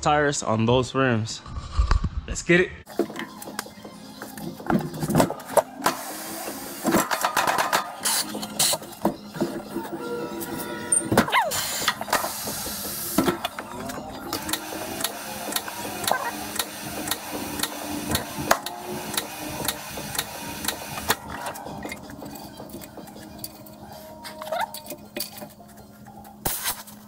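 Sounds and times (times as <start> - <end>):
tire changer mechanical clicking: 11.6 - 23.6
rubbery squeaks: 16.0 - 16.4, 24.3 - 24.8.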